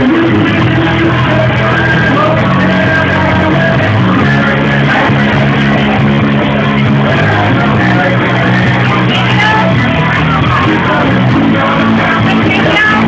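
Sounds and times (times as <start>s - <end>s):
drums: 0.0s - 13.0s
electric guitar: 0.0s - 13.0s
rock band playing live: 0.0s - 13.0s.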